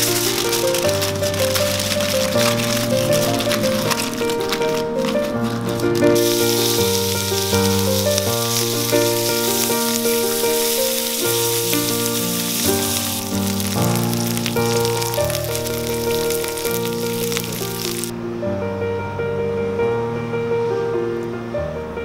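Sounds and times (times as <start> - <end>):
vegetables sizzling in hot oil: 0.0 - 4.8, 5.4 - 18.1
background music: 0.0 - 20.2.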